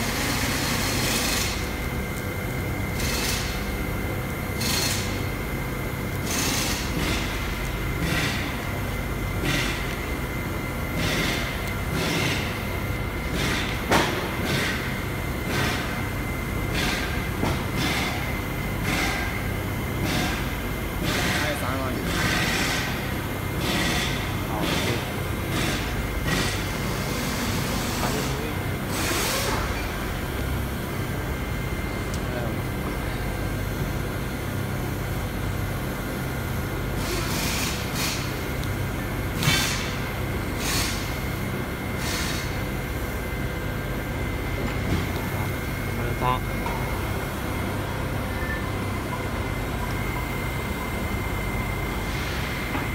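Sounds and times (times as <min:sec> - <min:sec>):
machinery low hum: 0:00.0 - 0:52.9
thin steady whine: 0:37.8 - 0:52.9.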